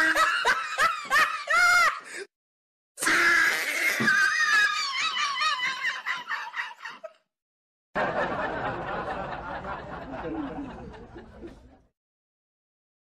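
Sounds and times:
high-pitched scream or laugh: 3.0 - 7.0
people laughing and chattering: 8.0 - 11.9.

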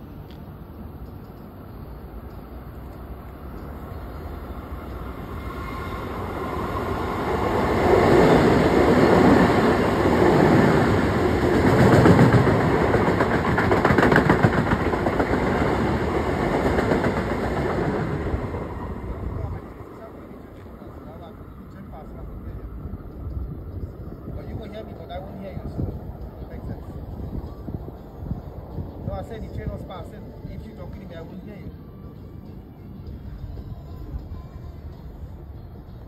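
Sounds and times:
electric train passing: 0.0 - 36.0
wheels rattling over rails: 3.5 - 30.1.

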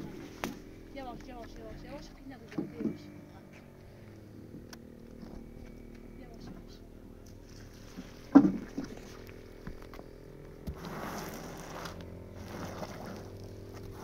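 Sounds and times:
push broom scratching: 10.7 - 14.0.

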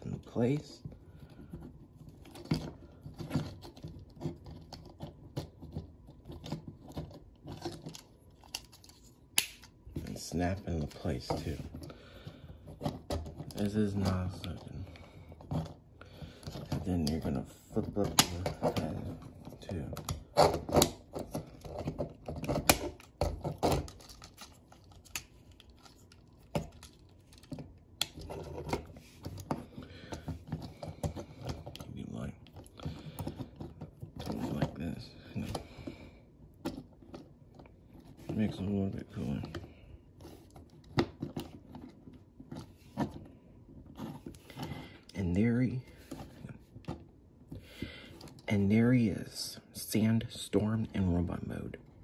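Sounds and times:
plastic parts clicking and snapping: 2.2 - 10.2, 16.4 - 34.8.

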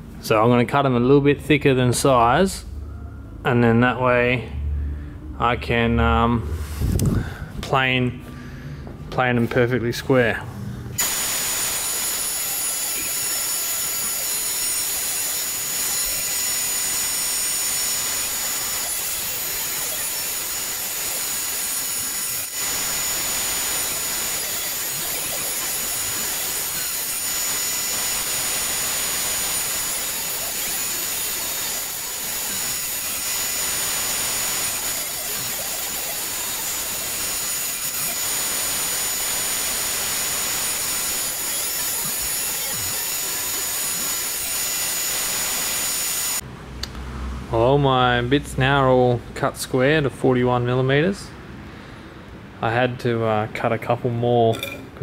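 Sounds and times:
table saw whining: 11.0 - 46.4.

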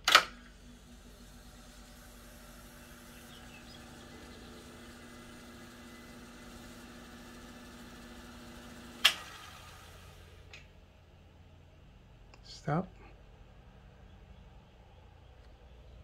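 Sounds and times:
tape transport humming: 0.0 - 11.4.

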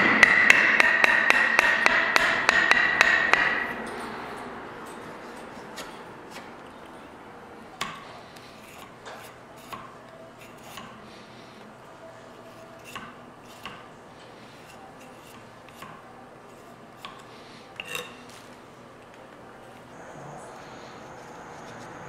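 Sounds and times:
knife splitting and shaving wood: 12.5 - 18.0.

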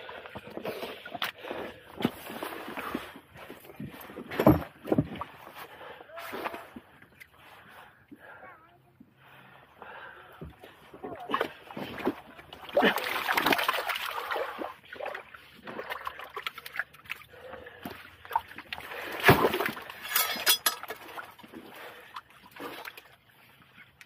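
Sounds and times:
seawater splashing among rocks: 11.2 - 17.2, 18.6 - 20.0.

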